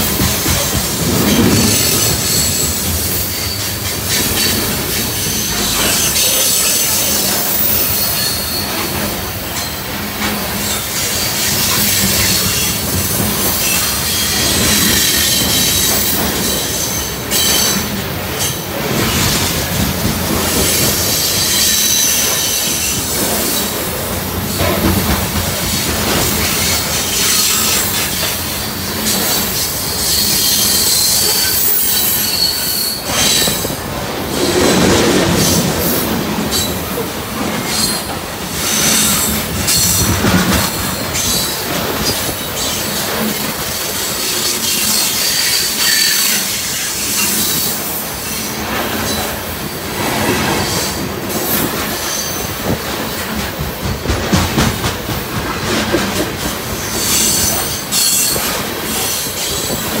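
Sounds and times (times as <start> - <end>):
train wheels on rails: 0.0 - 60.0
high-pitched wheel squeal: 29.9 - 33.7.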